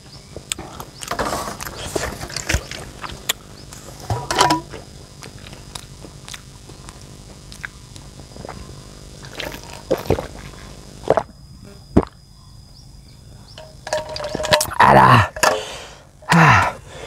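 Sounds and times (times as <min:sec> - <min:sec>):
person chewing wetly: 0:00.4 - 0:03.4, 0:05.2 - 0:11.4
hissing breaths: 0:15.2 - 0:17.0.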